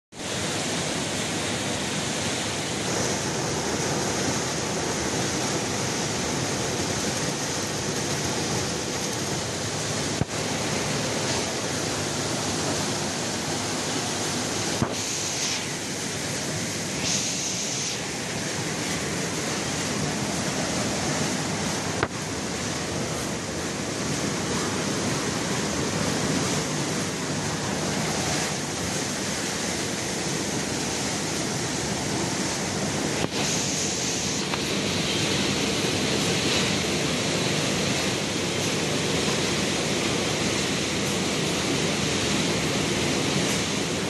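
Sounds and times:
sorting machinery rushing hiss: 0.2 - 44.0
sharp high hiss: 8.9 - 21.3, 32.4 - 35.5.

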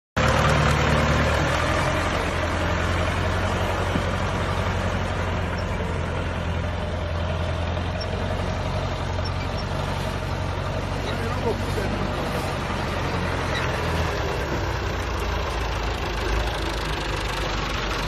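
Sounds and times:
diesel tractor engine under load: 0.2 - 18.0.

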